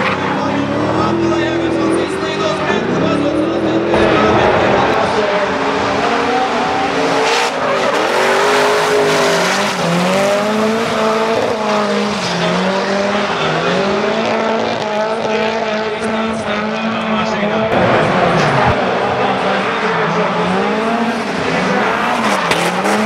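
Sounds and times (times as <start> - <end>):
car engines revving: 0.0 - 23.0.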